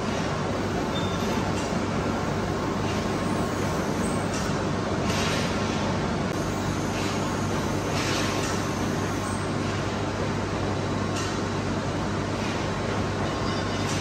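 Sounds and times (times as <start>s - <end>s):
workshop machinery humming: 0.0s - 14.0s.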